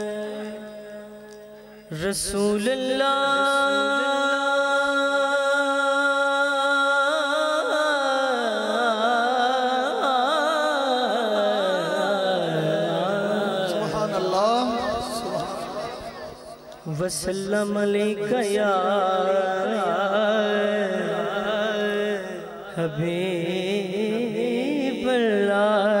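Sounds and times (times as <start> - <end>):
man singing unaccompanied: 1.8 - 16.2, 16.8 - 26.0.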